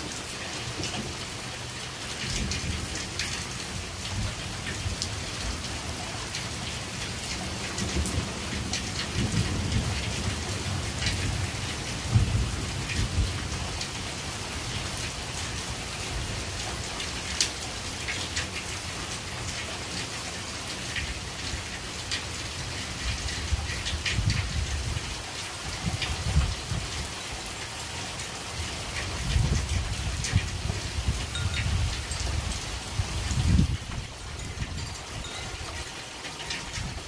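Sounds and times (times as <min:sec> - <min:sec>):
raindrops ticking close by: 0:00.0 - 0:37.0
low thunder rumbles: 0:09.0 - 0:13.5.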